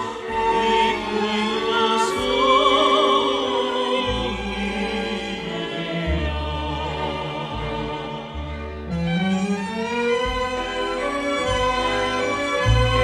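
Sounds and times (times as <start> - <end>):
tenor and soprano singing: 0.0 - 9.8
orchestral accompaniment: 0.0 - 13.0.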